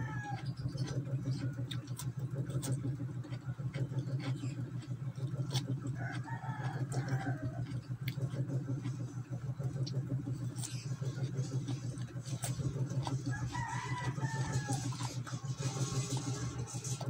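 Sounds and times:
rooster crowing: 0.0s - 0.6s, 5.9s - 7.8s, 13.1s - 16.4s
cucumber crunching and chewing: 0.0s - 17.0s
steady low hum: 0.0s - 17.0s.

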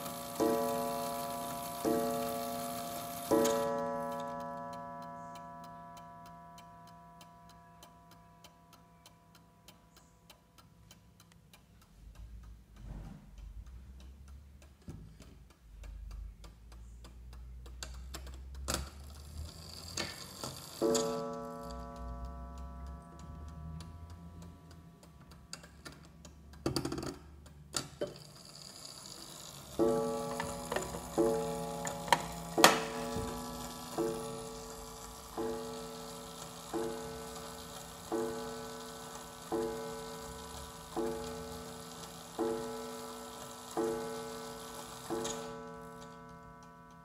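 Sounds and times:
clock gong ringing: 0.0s - 7.6s, 20.7s - 24.3s, 29.0s - 47.0s
clock ticking: 0.0s - 47.0s.

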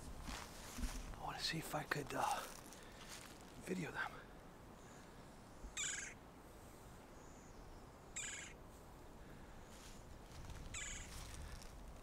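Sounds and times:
woodpecker rolling call: 5.8s - 6.2s, 8.2s - 8.6s, 10.6s - 11.2s.

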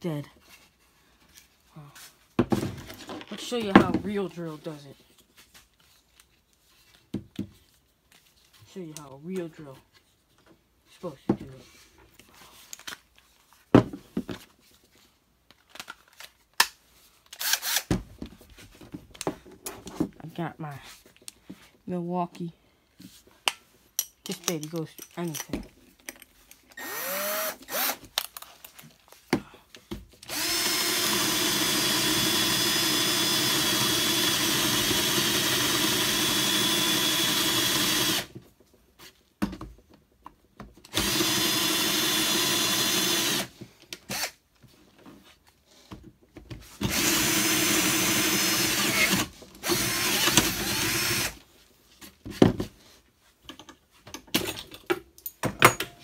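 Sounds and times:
cordless drill boring wood: 17.4s - 17.8s, 26.8s - 28.0s, 30.2s - 38.4s, 40.9s - 44.4s, 46.8s - 51.4s.

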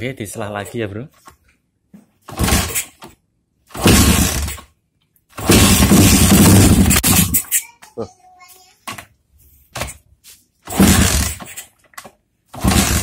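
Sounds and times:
motorcycle kick-start: 2.3s - 3.0s, 3.7s - 4.7s, 5.4s - 7.5s, 10.7s - 11.8s, 12.5s - 13.0s
rough engine bursts: 2.3s - 3.0s, 3.7s - 4.7s, 5.4s - 7.5s, 10.6s - 11.8s, 12.5s - 13.0s.

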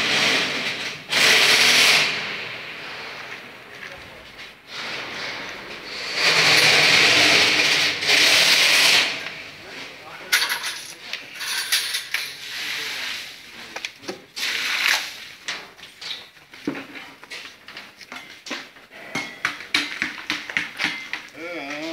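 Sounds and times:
steel parts clinking and clanking: 10.2s - 12.6s.

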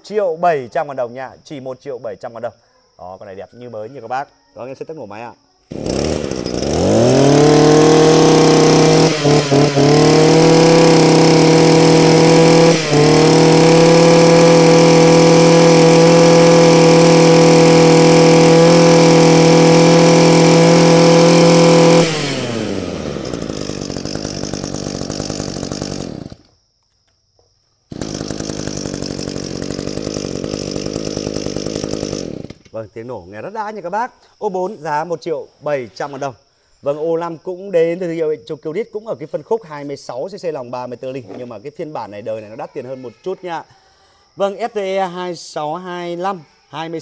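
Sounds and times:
brush cutter engine revving and idling: 5.7s - 26.5s, 27.9s - 32.8s.

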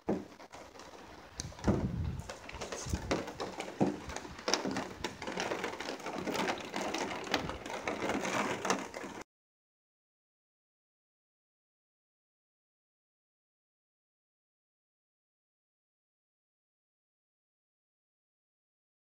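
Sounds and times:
rain pattering: 0.0s - 9.2s
wind gusting on microphone: 1.3s - 3.4s.

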